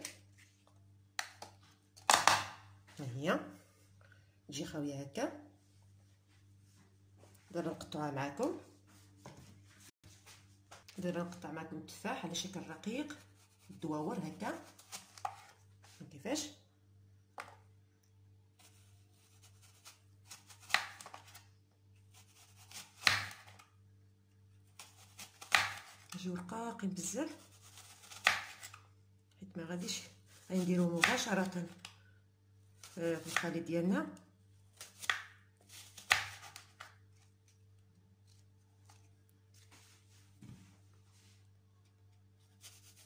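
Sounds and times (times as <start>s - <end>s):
knife slicing through apple: 18.6s - 21.4s, 22.1s - 23.6s, 24.7s - 26.2s, 27.3s - 28.8s, 30.3s - 31.9s, 32.8s - 33.6s, 34.8s - 37.0s, 42.5s - 43.0s
knife scraping through apple: 42.5s - 43.0s.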